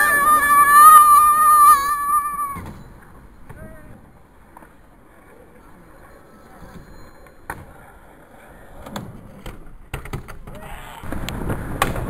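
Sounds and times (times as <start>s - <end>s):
skateboard wheels rolling on tarmac: 0.0s - 12.0s
skateboard clacks: 7.2s - 12.0s.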